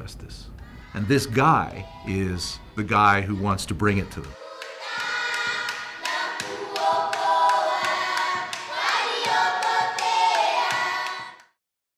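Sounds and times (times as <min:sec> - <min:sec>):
group singing in chorus: 0:00.6 - 0:11.6
steady handclaps: 0:04.2 - 0:11.6.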